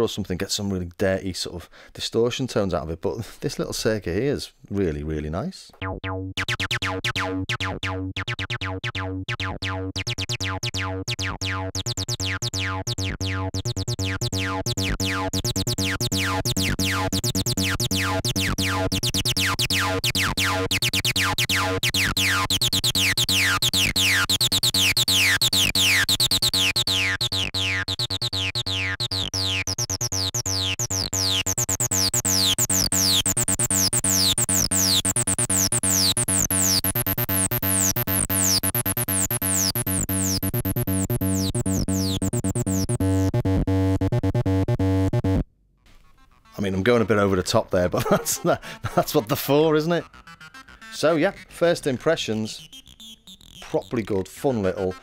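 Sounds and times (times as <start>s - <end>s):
distorted acid synth bass line: 5.8s - 45.4s, 47.9s - 55.0s.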